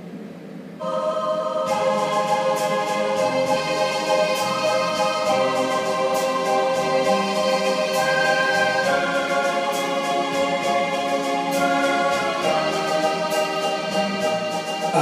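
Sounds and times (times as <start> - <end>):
karaoke backing track chords: 0.0 - 15.0.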